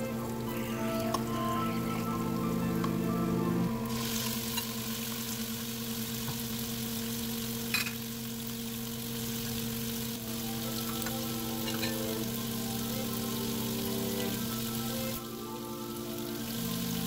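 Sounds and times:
chicken sizzling in hot oil: 3.8 - 17.0.

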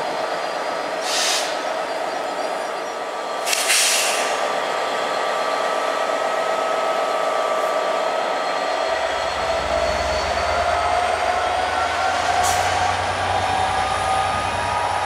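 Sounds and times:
diesel locomotive engine hum: 0.0 - 15.0
air hiss: 1.0 - 1.6, 3.4 - 4.4.

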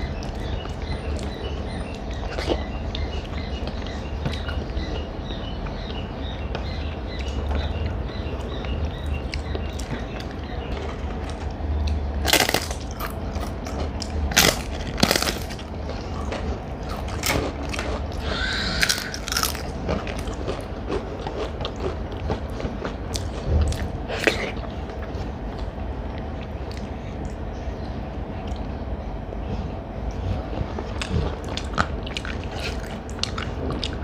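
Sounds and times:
crunching bites: 9.2 - 24.6
person chewing: 9.2 - 27.4, 30.1 - 34.0.

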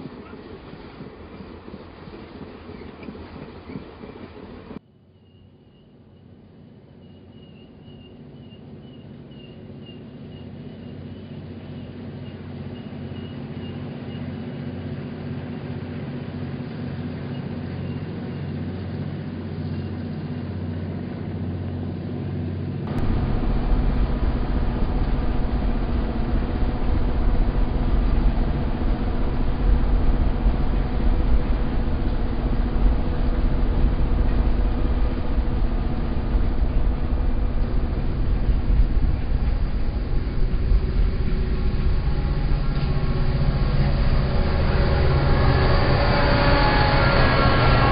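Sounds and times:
model train rumbling across bridge: 8.2 - 47.9
model train humming: 22.9 - 47.9.

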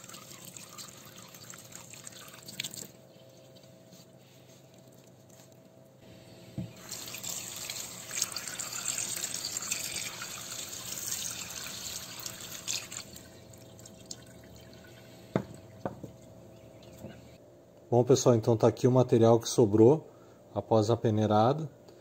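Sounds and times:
tap water running into tub: 0.0 - 3.0, 6.6 - 16.2.

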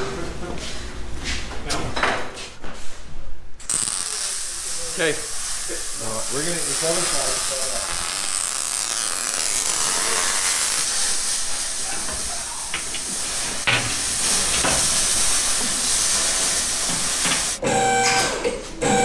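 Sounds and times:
welding arc crackling and hissing: 3.6 - 17.6.

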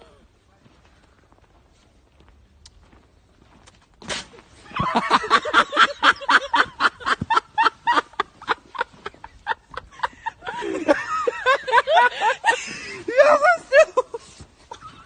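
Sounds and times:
woman laughing hard: 4.7 - 15.0.

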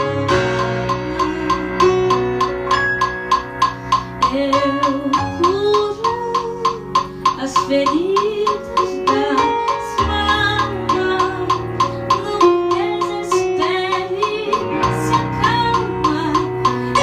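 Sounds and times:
low bass: 0.0 - 7.4
synthesizer chords and melody: 0.0 - 17.0
ticking drum beat: 0.0 - 17.0.

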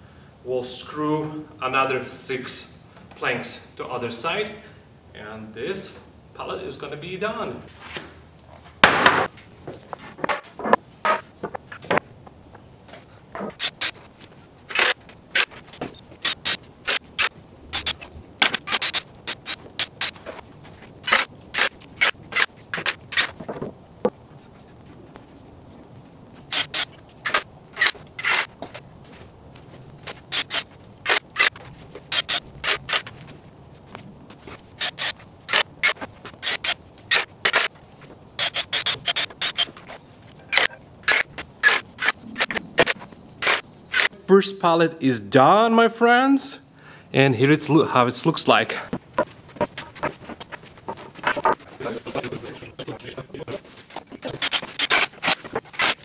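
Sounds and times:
drill driving screws into wood: 13.5 - 14.0, 14.7 - 15.6, 16.2 - 20.2, 21.0 - 23.3, 26.5 - 28.5, 30.3 - 33.0, 34.8 - 37.7, 38.4 - 39.8, 40.5 - 44.1, 54.4 - 56.0
cordless drill driving screws: 38.4 - 39.8.

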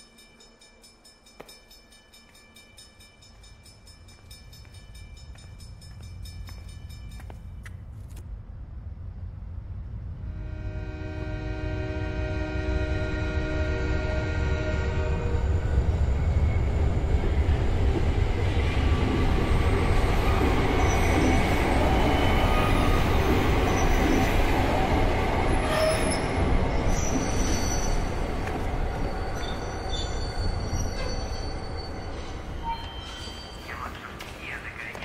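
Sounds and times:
thin high squealing tones: 25.6 - 34.1.

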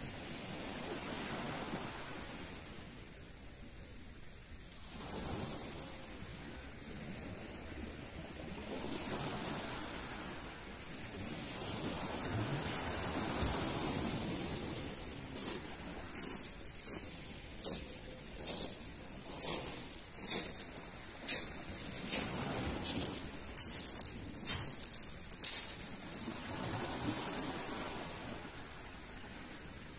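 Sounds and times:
surf washing onto pebble beach: 8.4 - 29.9
bare feet crunching on pebbles: 14.1 - 26.2.

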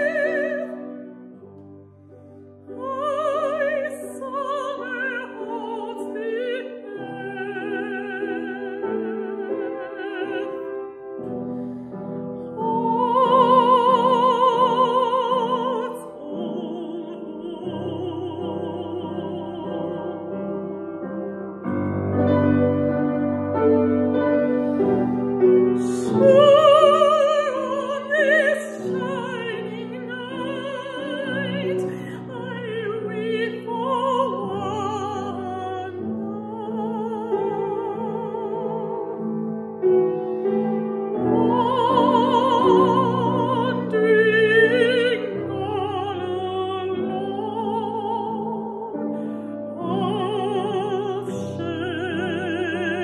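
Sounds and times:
woman singing opera: 0.0 - 1.6, 2.4 - 53.0
piano accompaniment: 0.0 - 53.0.

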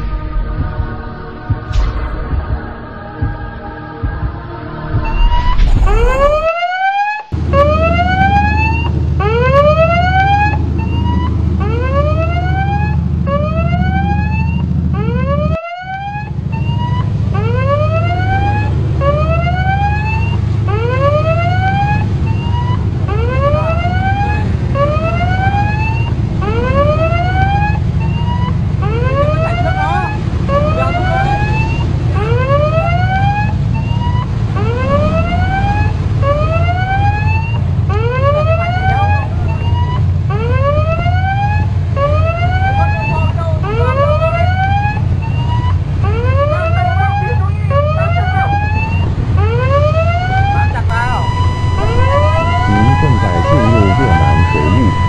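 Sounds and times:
low rumble: 0.0 - 6.5, 50.9 - 55.0
ship siren whooping: 4.3 - 55.0.

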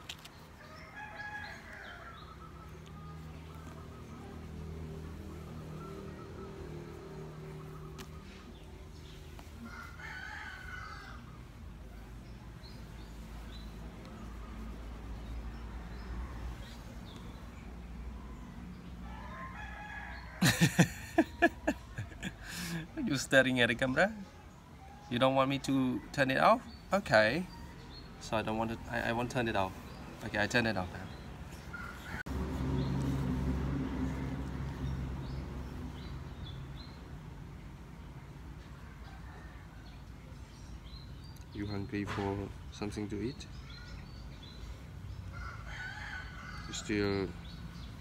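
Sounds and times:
low engine hum: 32.2 - 36.7.

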